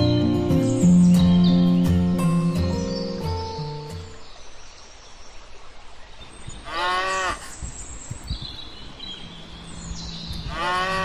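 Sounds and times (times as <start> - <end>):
cow mooing: 6.7 - 7.4, 10.5 - 11.0.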